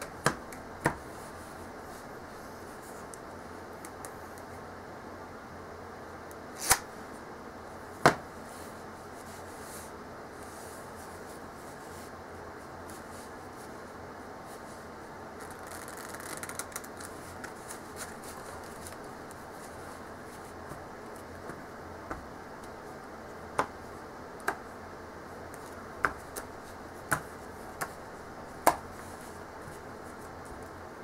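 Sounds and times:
steady hiss: 0.0 - 31.0
cards being riffled: 6.6 - 6.9, 15.4 - 19.9
cards flipped and dealt clicks: 6.6 - 6.9.

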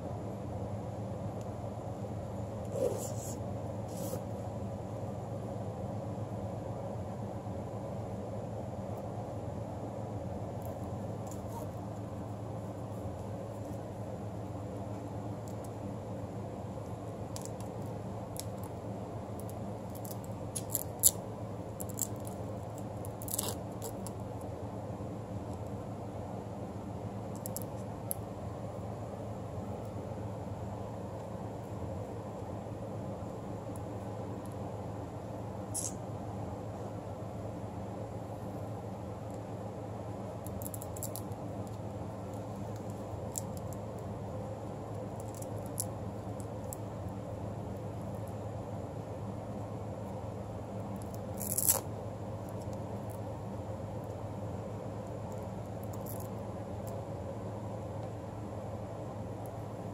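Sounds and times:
low room hum: 0.0 - 59.9
velcro scratchy rasp: 2.7 - 4.3
velcro strap clicking on plastic: 17.3 - 17.8, 19.4 - 21.2, 21.8 - 24.2, 40.4 - 41.8, 45.2 - 45.9, 51.0 - 51.9, 55.8 - 57.0.

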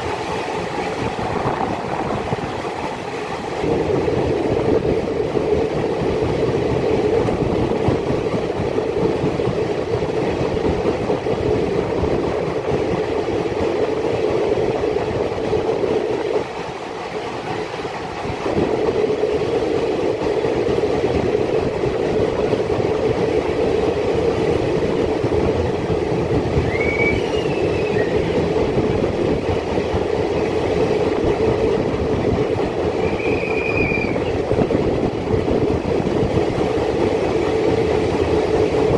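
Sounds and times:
train wheels rumbling on rails: 0.0 - 38.9
high-pitched wheel squeals: 26.6 - 28.3, 33.0 - 34.4.

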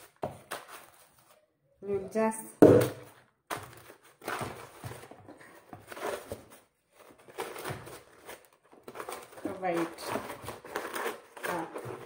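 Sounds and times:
paper rustling: 3.1 - 12.0.

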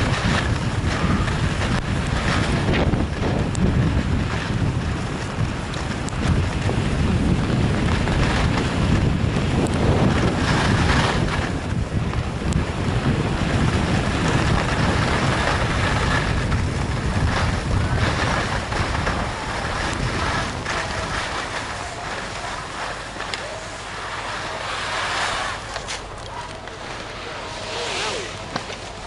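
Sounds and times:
wind buffeting microphone: 0.0 - 24.8
skis hissing over snow: 9.8 - 11.6, 13.2 - 29.0.

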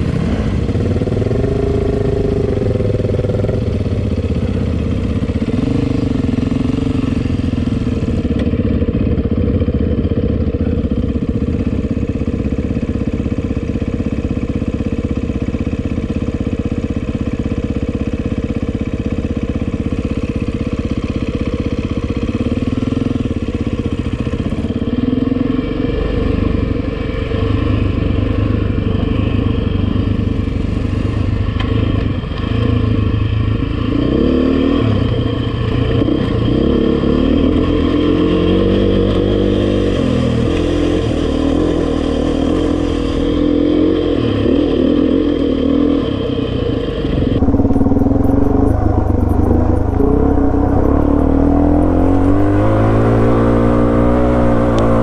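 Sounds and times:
dirt bike engine revving: 33.7 - 55.0.

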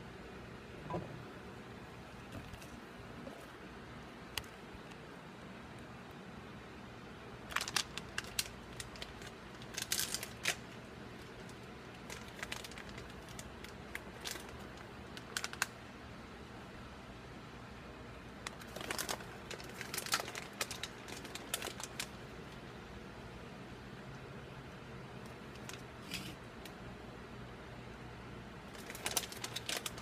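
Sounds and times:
low room hum: 0.0 - 30.0.

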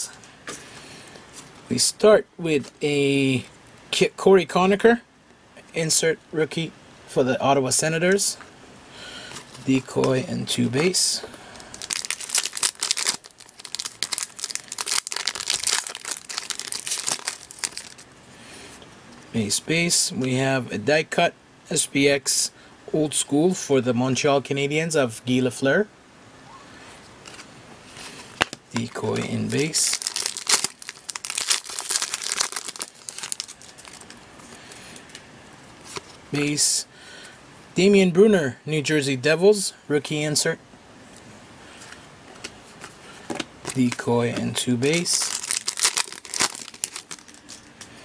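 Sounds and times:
foil wrapper tearing and crinkling: 11.6 - 18.1, 28.8 - 34.2, 43.6 - 44.1, 44.9 - 47.8.

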